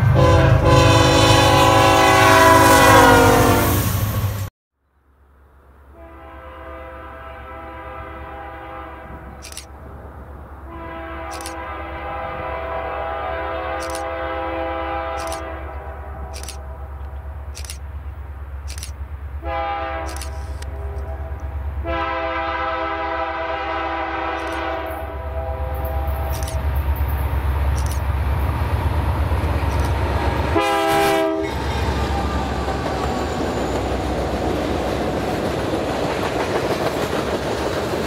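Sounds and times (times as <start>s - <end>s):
locomotive air horn blasts: 0.0s - 4.0s, 5.9s - 9.6s, 10.6s - 16.8s, 19.4s - 26.6s, 30.5s - 31.6s
locomotive engine rumble: 0.0s - 38.0s.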